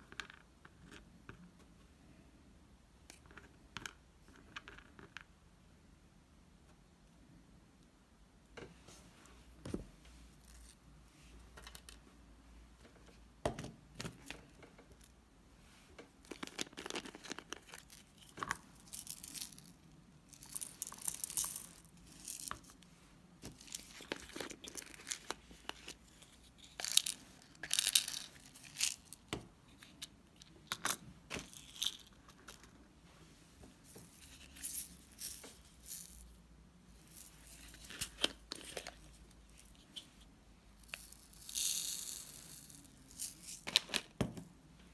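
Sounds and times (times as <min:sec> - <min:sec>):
sprinkles rattling in plastic: 0:34.4 - 0:36.3.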